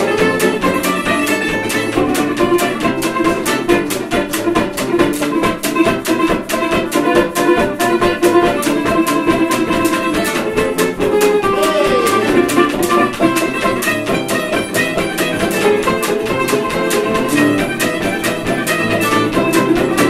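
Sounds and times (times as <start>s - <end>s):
sliding lead melody: 0.0s - 20.0s
strummed acoustic strings: 0.0s - 20.0s.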